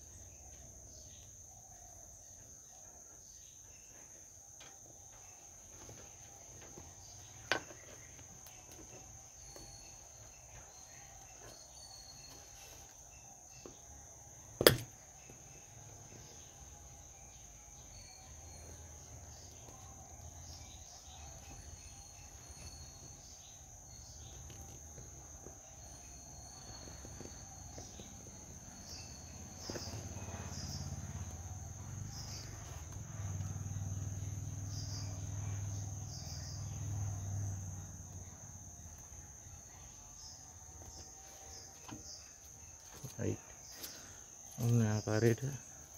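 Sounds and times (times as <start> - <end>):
crickets chirring: 0.0 - 45.9
sharp knocks: 14.6 - 15.0.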